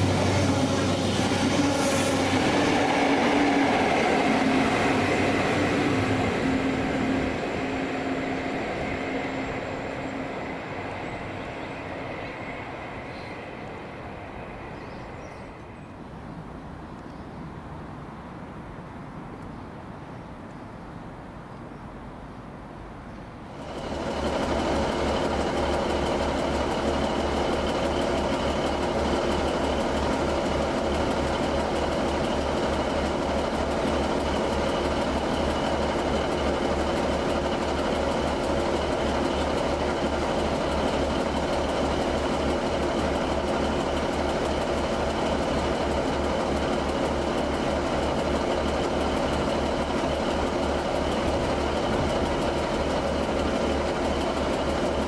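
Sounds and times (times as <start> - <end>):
diesel engine idling: 0.0 - 15.3.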